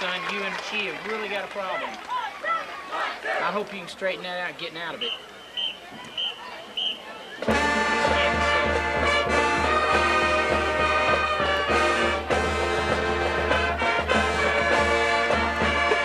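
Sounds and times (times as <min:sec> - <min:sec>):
marching band playing swing tune: 0:05.0 - 0:16.0.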